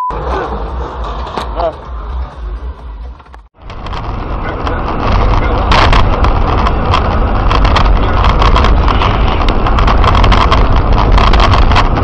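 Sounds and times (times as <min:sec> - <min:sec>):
car rumbling: 0:00.0 - 0:12.0
knocks and rattles: 0:03.1 - 0:12.0.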